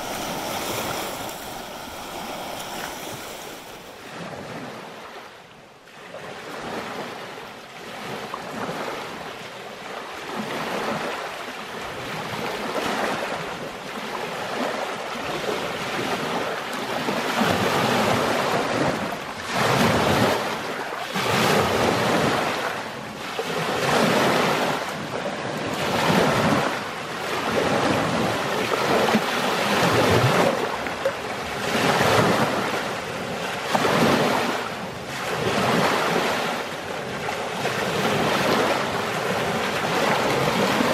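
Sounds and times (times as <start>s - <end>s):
waves splashing on stony shore: 0.0s - 5.3s, 5.9s - 40.9s.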